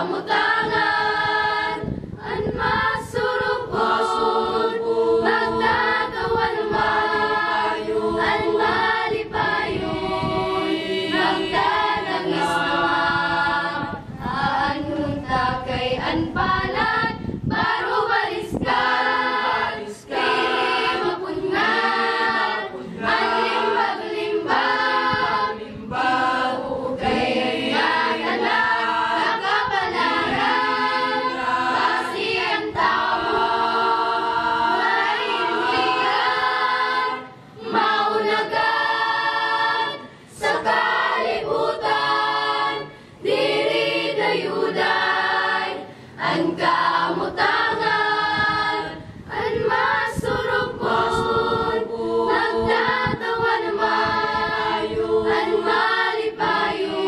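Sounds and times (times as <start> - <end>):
choir singing a cappella: 0.0 - 57.0
singers breathing: 40.0 - 40.4, 42.9 - 43.2, 45.8 - 46.2.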